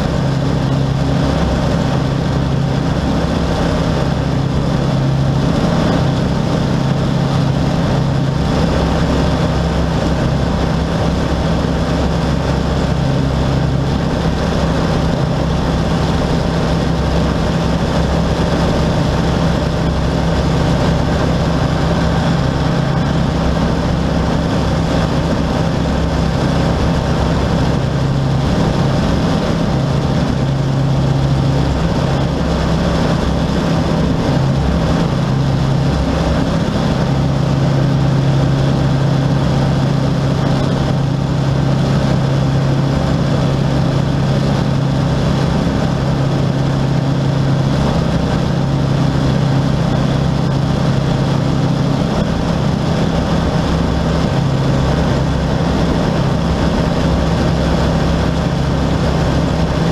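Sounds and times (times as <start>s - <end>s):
light aircraft engine droning: 0.0s - 59.9s
rushing air: 0.0s - 59.9s.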